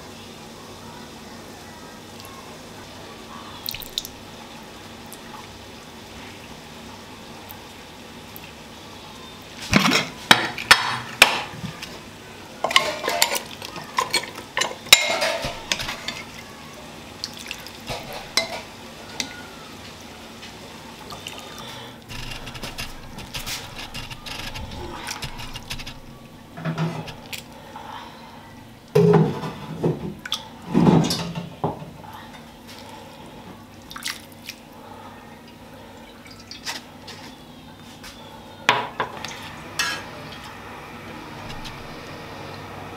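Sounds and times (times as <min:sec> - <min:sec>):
utensils clinking on bowls and pots: 0:12.6 - 0:16.4, 0:17.9 - 0:19.4, 0:30.8 - 0:31.5, 0:38.7 - 0:40.4
stirring liquid: 0:21.1 - 0:27.5.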